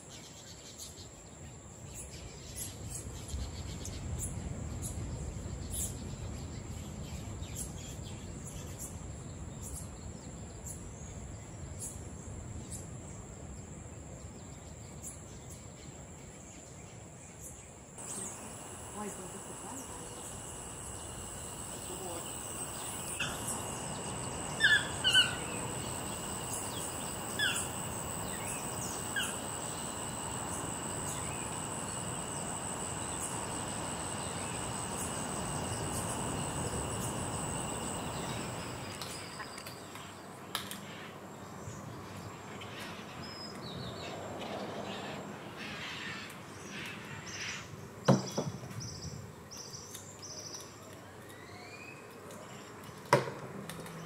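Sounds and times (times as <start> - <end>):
high-pitched insect drone: 18.0 - 39.6
bird chirps: 18.0 - 39.8.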